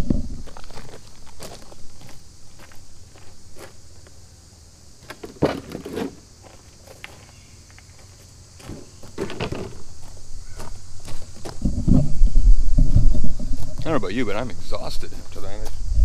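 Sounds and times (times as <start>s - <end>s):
footsteps crunching on gravel: 0.0s - 4.2s, 5.7s - 11.9s, 15.0s - 15.9s.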